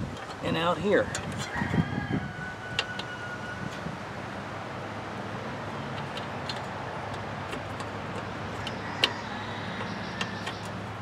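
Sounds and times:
light ticks and clicks of metal part: 0.1 - 1.6, 5.9 - 9.2.

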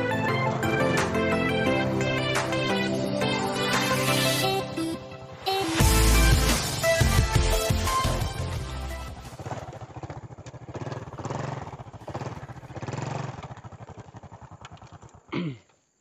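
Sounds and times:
scooter engine running: 5.8 - 15.8.

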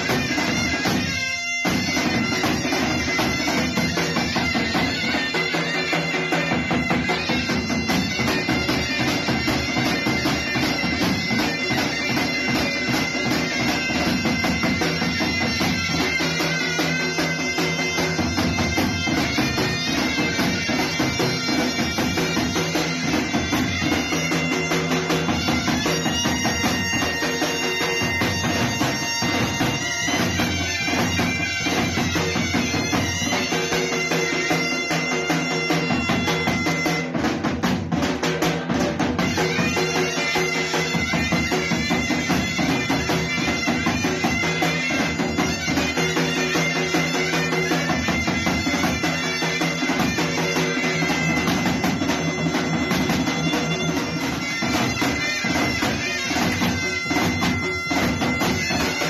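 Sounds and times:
zurnas playing folk tune: 0.0 - 59.0.

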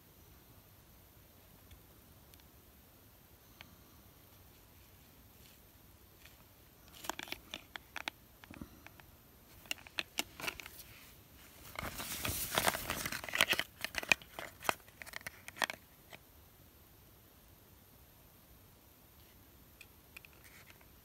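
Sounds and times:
cardboard boxes crinkling: 9.5 - 15.8.

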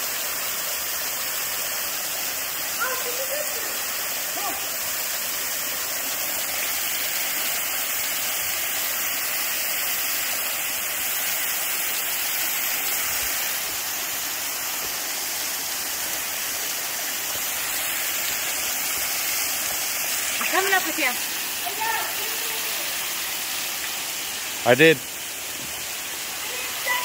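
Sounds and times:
waterfall rushing: 0.0 - 27.0.

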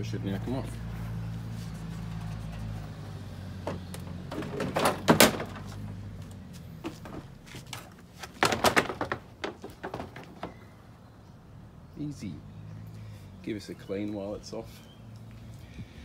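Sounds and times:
plastic clattering against car body: 3.6 - 6.0, 6.8 - 10.7.

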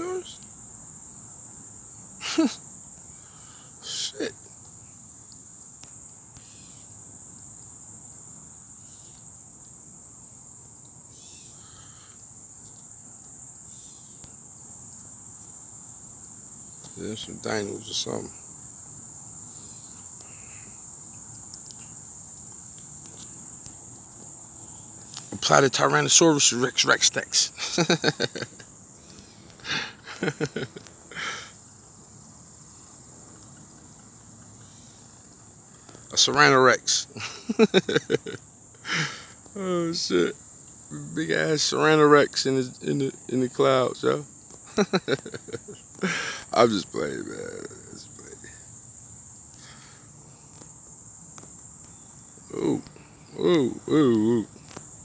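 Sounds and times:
insects trilling: 0.0 - 55.0
faint chirps: 1.9 - 9.4, 10.8 - 15.6, 19.3 - 48.8, 51.8 - 54.8
person mumbling: 2.2 - 2.6, 40.9 - 41.4, 52.5 - 54.5
breathy hiss: 2.2 - 4.5, 11.3 - 12.5, 16.5 - 22.3, 24.5 - 33.3, 34.5 - 51.2, 51.8 - 55.0.

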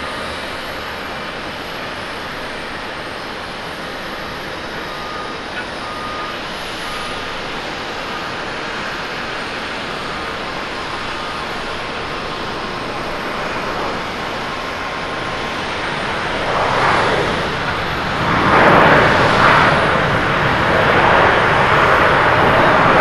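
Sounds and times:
jet engines rushing: 0.0 - 23.0
faint short beeps: 4.7 - 7.3.

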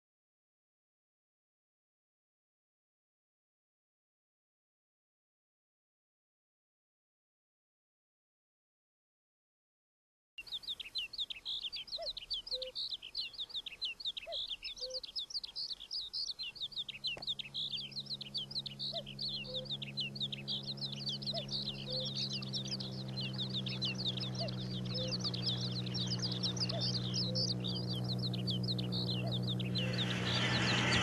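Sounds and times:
small birds chirping: 10.4 - 31.0
diesel locomotive engine drone: 16.4 - 31.0.

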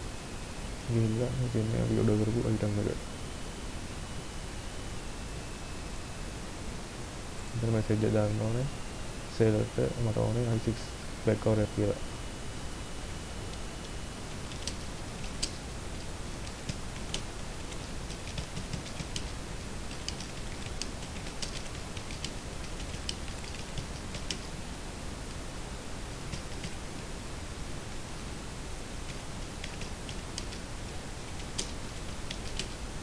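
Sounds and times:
steady background hiss: 0.0 - 33.0
keyboard typing clicks: 14.5 - 15.6, 16.4 - 19.3, 19.9 - 24.5, 26.3 - 26.8, 29.1 - 30.7, 31.3 - 32.8.

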